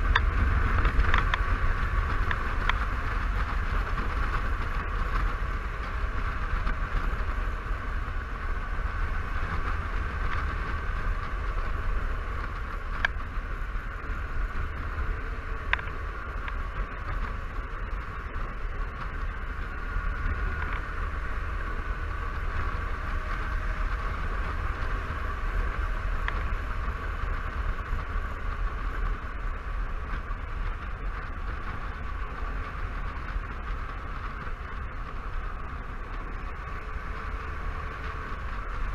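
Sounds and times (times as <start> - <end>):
engine drone: 0.0 - 38.9
road noise: 0.0 - 38.9
wind rush: 0.0 - 38.9
faint ticks: 0.1 - 1.5.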